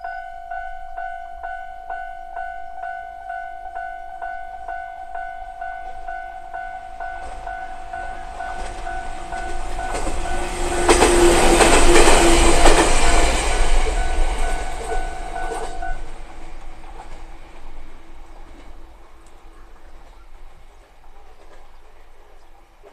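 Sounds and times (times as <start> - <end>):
level crossing bell ringing: 0.0 - 10.4
train passing: 0.0 - 22.9.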